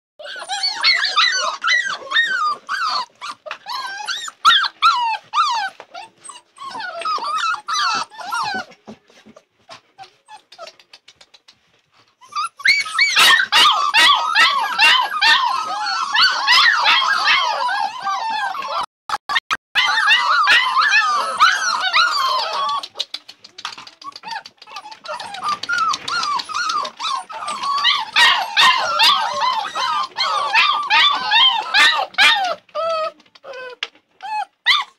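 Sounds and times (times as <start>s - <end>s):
puppies whining and yelping: 0.2s - 34.9s
sharp clicks: 22.6s - 26.9s.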